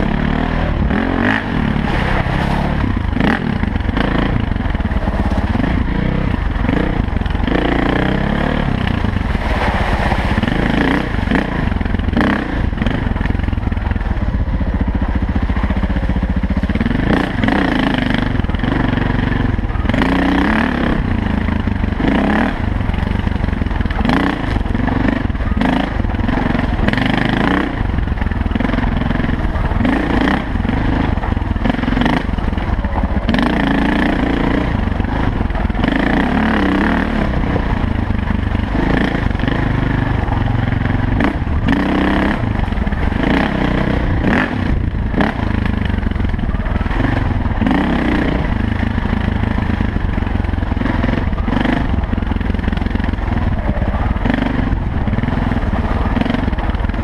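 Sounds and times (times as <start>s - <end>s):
dirt bike engine revving: 0.0s - 57.0s
bike knocks and rattles: 0.7s - 18.8s.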